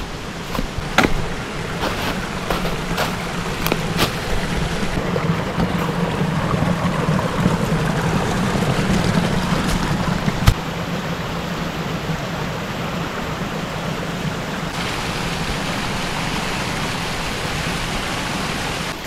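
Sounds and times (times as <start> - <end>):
footsteps on a trail: 0.0 - 5.0
steady rushing noise: 0.0 - 19.0.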